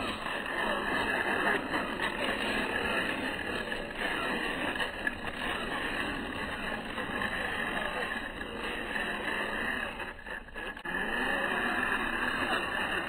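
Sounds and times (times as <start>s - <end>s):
toy car electric motor whirring: 10.8s - 12.9s.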